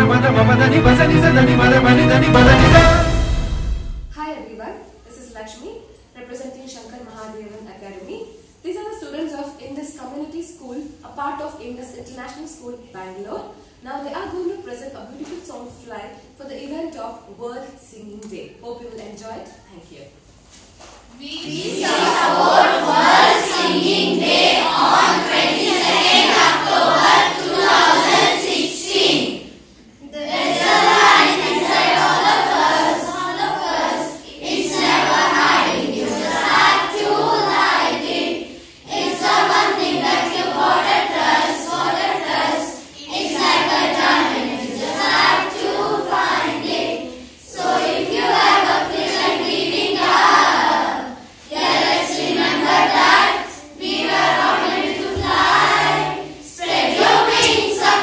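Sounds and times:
children's choir singing: 0.0s - 4.2s, 21.2s - 58.0s.

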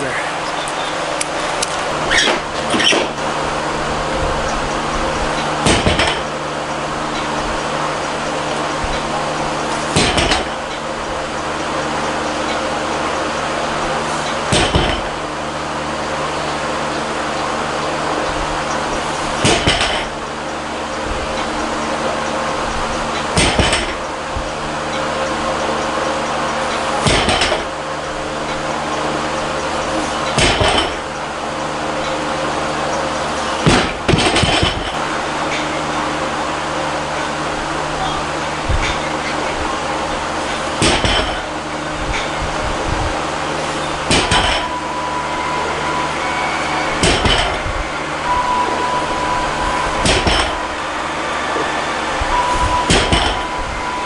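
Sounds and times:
barbell plates landing on platform: 44.1s - 44.7s, 47.0s - 47.6s, 50.0s - 50.6s, 52.9s - 53.5s.

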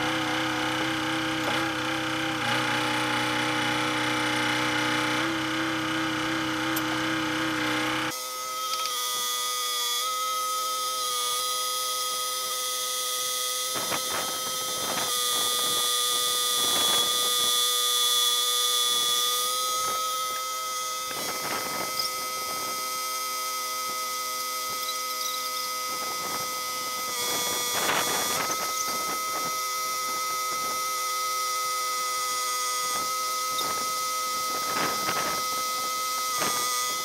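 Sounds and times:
excavator engine whining: 0.0s - 9.0s, 13.0s - 37.0s.

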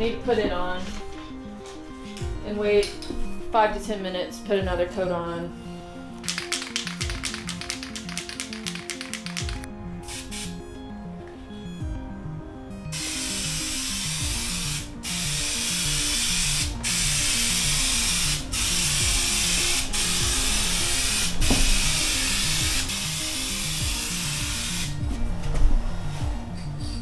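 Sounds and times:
clicks: 6.2s - 9.7s
spray paint can hissing: 6.2s - 10.6s, 12.9s - 25.0s.

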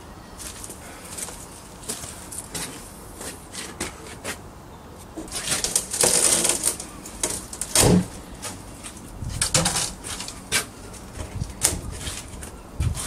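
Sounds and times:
wood cracking and scraping: 5.2s - 12.6s.

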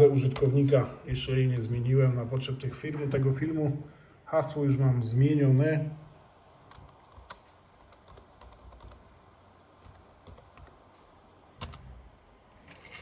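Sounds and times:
laptop keyboard keystrokes: 6.7s - 9.1s, 9.8s - 10.8s, 11.6s - 12.0s.

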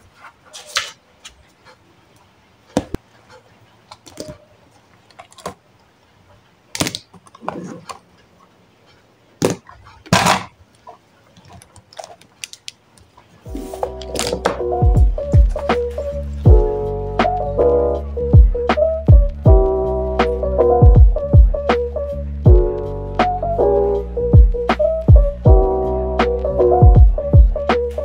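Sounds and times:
paper rustling: 0.0s - 1.5s, 11.3s - 14.6s.

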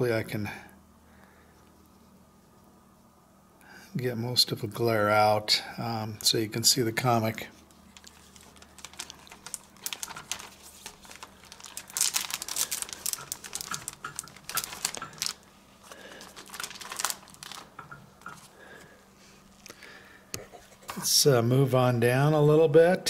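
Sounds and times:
plastic bags crinkling: 7.7s - 18.8s
small crackly clicks: 7.9s - 15.4s, 16.2s - 18.4s.

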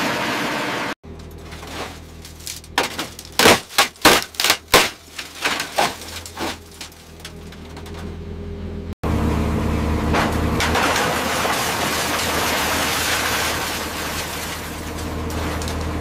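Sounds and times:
metal clanks and crashes: 1.0s - 8.2s, 10.1s - 16.0s
low machine drone: 6.0s - 12.9s.

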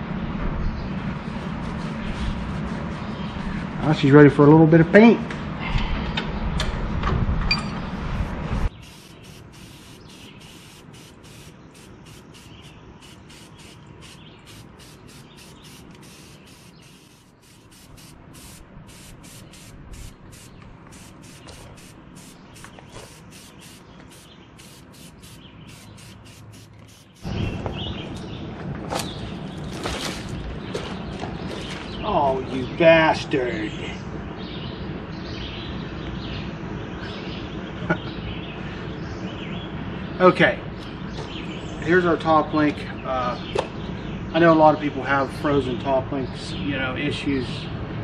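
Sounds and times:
spray-paint can hissing: 8.7s - 27.4s.

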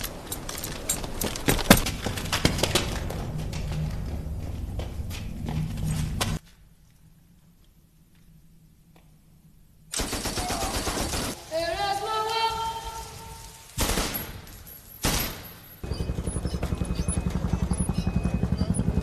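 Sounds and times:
loud gunshots: 9.9s - 11.4s, 13.8s - 18.0s.

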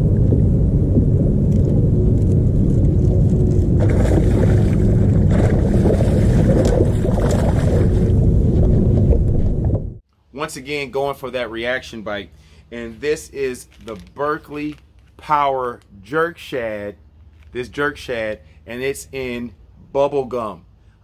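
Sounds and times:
strong wind buffeting microphone: 0.0s - 10.0s
fish splashing at water surface: 3.8s - 8.1s.

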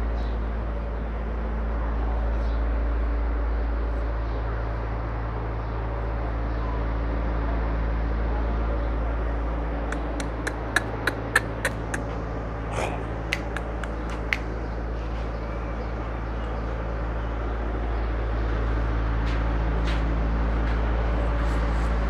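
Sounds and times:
steady low hum: 0.0s - 22.0s
sharp clicks: 10.0s - 12.1s, 13.3s - 14.5s.

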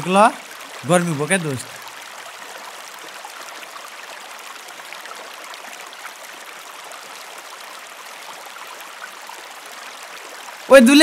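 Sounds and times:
river flowing over stones: 0.0s - 11.0s.

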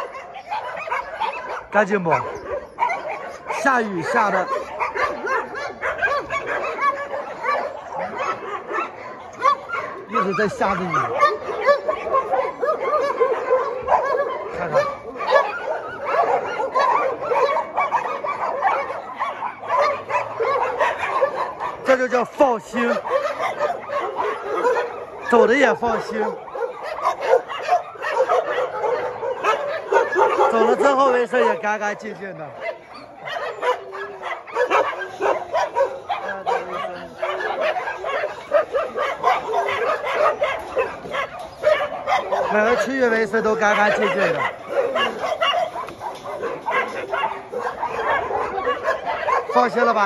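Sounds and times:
dogs yelping and whining: 0.0s - 50.0s.

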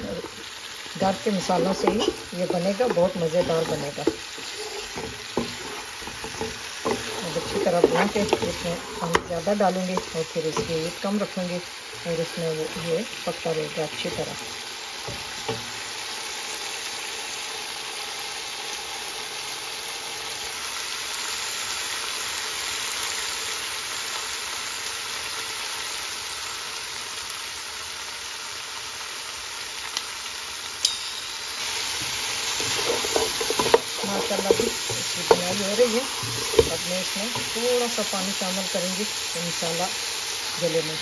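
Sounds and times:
wooden spatula scraping: 0.0s - 15.5s, 32.0s - 39.2s
meat sizzling in a pot: 0.0s - 41.0s.

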